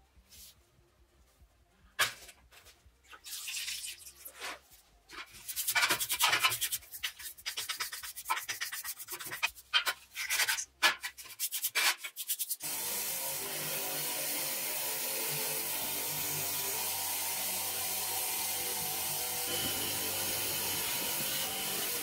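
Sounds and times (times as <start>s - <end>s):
stiff brush scrubbing metal: 5.3s - 12.8s
power tool whirring: 12.6s - 22.0s.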